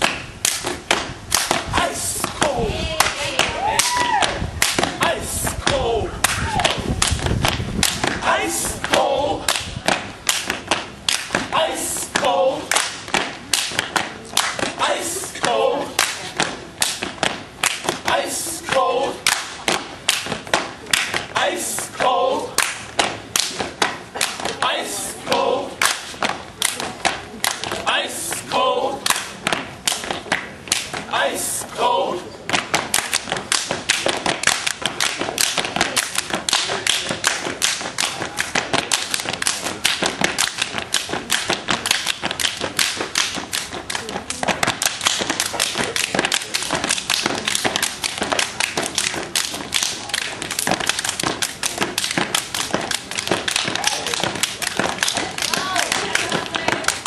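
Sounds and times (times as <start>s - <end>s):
stomps on pavement: 0.0s - 28.5s, 32.4s - 57.0s
hand claps and body slaps: 0.0s - 31.1s, 32.5s - 57.0s
group shouting calls: 1.7s - 6.8s, 8.2s - 9.6s, 11.5s - 12.7s, 14.7s - 16.0s, 18.0s - 19.3s, 21.3s - 22.6s, 31.1s - 32.3s, 53.6s - 54.3s, 55.1s - 57.0s
foot stomps on pavement: 32.5s - 57.0s.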